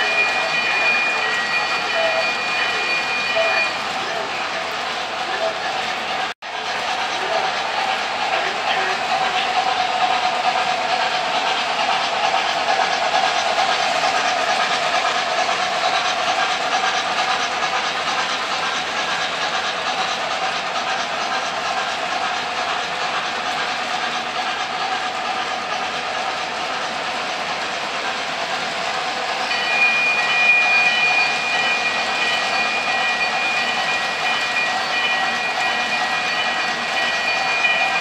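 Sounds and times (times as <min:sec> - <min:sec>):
model train wheels on rails: 0:00.0 - 0:38.0.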